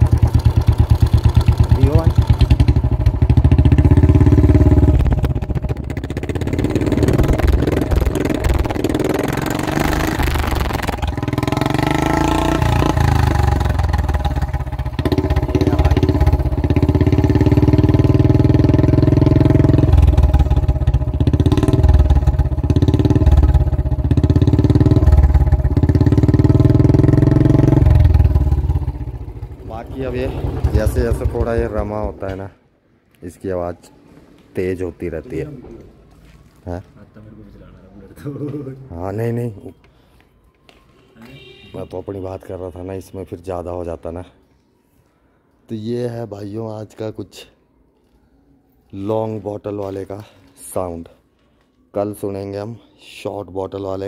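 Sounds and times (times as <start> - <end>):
motorcycle engine exhaust beat: 0.0 - 32.2.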